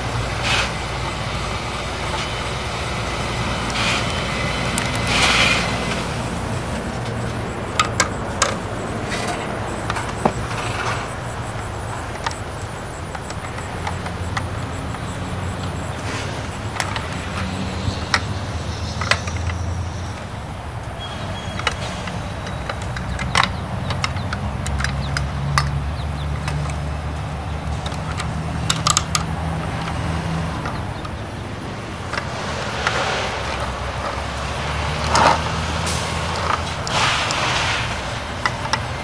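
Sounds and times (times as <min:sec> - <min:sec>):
diesel engine idling: 0:00.0 - 0:39.0
plastic toy clicks and knocks: 0:06.3 - 0:20.4, 0:21.3 - 0:31.3, 0:32.0 - 0:34.2, 0:38.3 - 0:39.0
air hisses: 0:35.8 - 0:38.4.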